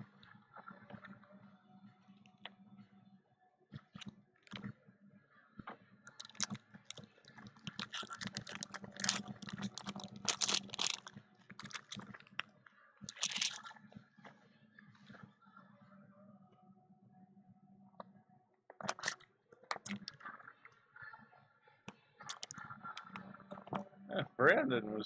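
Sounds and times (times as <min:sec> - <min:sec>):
card packaging crinkling: 0:06.1 - 0:07.0, 0:07.6 - 0:12.4, 0:13.1 - 0:13.7, 0:18.9 - 0:20.1, 0:22.3 - 0:22.5.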